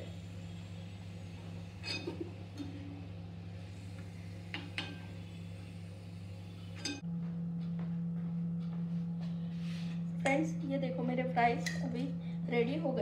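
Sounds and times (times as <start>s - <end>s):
oil frying hiss: 0.0s - 2.4s
steady low hum: 0.0s - 13.0s.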